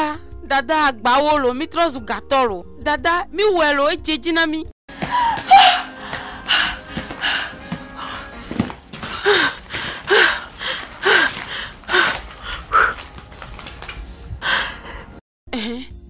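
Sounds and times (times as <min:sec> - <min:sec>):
woman gasping cries: 0:05.0 - 0:08.4, 0:09.0 - 0:13.0.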